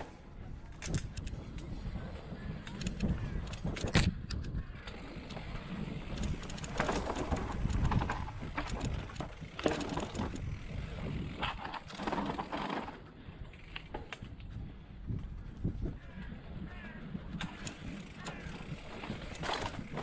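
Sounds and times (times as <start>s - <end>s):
bicycle tyre rumble: 0.0s - 20.0s
wind buffeting microphone: 0.0s - 20.0s.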